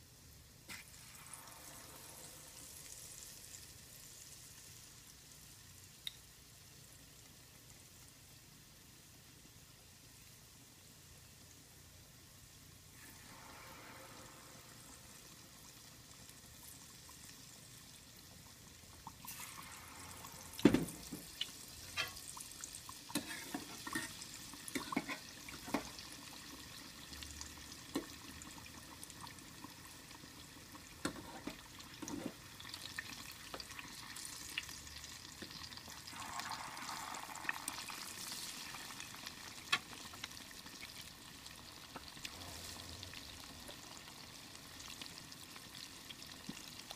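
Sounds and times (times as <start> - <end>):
food deep-frying in hot oil: 0.0 - 46.9
oil popping and crackling: 20.5 - 46.9.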